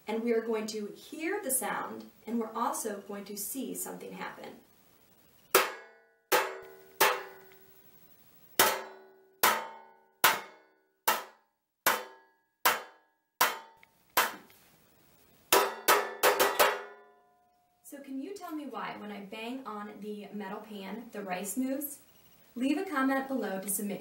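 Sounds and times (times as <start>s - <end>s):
metal spoon banging baking pan: 5.5s - 7.4s, 8.6s - 13.8s, 15.5s - 17.0s.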